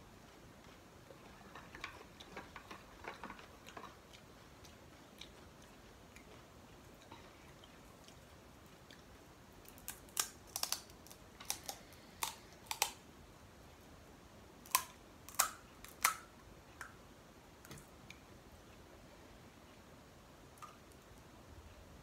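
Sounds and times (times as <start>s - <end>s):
crisp fried shells cracking: 9.6s - 13.0s, 14.6s - 16.3s.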